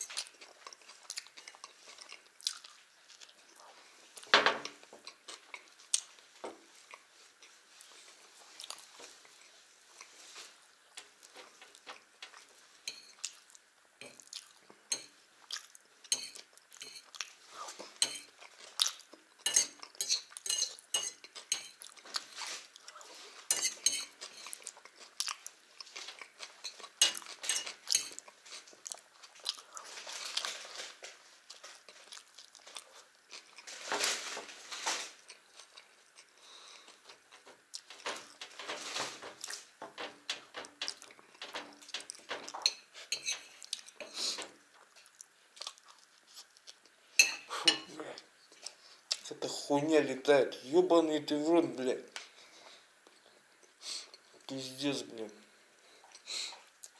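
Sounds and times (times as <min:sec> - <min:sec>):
chewing and mouth sounds: 0:00.0 - 0:04.3, 0:13.2 - 0:14.8, 0:15.4 - 0:23.2, 0:24.0 - 0:30.5, 0:31.4 - 0:33.7, 0:44.8 - 0:47.0, 0:48.5 - 0:49.3
fork scraping on china plate: 0:19.4 - 0:21.8, 0:23.5 - 0:24.6, 0:42.6 - 0:44.1.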